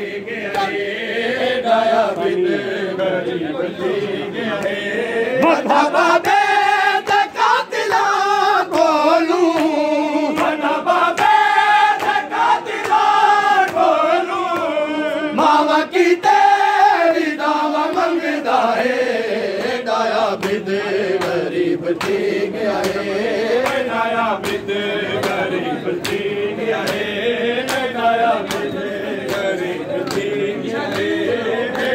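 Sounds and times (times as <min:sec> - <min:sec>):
men chanting in unison: 0:00.0 - 0:31.9
hands slapping chests: 0:08.7 - 0:14.8, 0:19.6 - 0:30.3.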